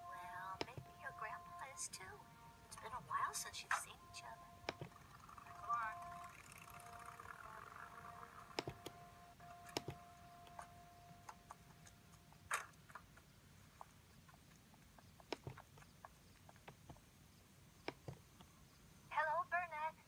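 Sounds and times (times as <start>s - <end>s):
faint steady tone: 0.0s - 20.0s.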